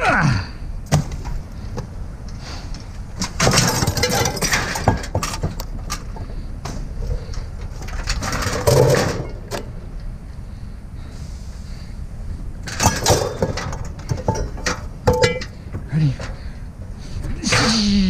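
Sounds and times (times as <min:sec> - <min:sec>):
clicks and knocks: 0:12.7 - 0:16.4.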